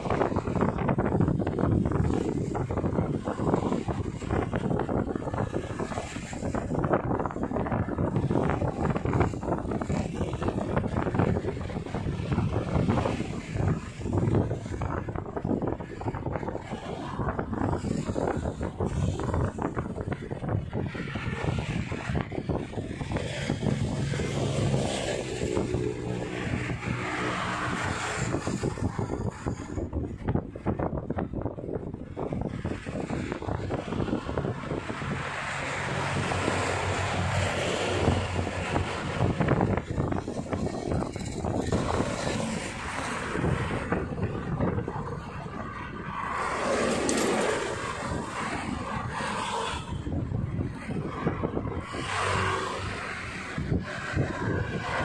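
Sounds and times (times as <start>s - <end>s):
cars driving past: 0.0s - 55.0s
wind on microphone: 0.0s - 55.0s
vehicle engine passing: 32.2s - 55.0s.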